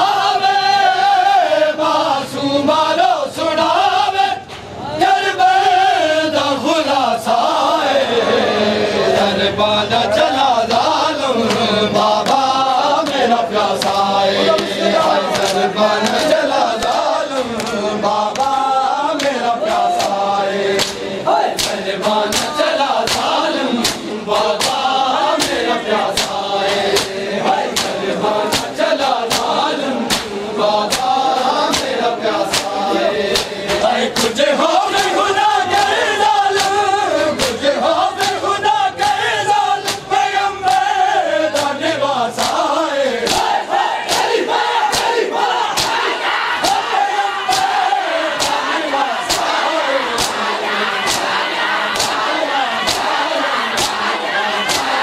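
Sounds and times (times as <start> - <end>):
men chanting together: 0.0 - 55.0
palms slapping bare chests: 10.7 - 37.6, 38.2 - 41.8, 42.4 - 55.0.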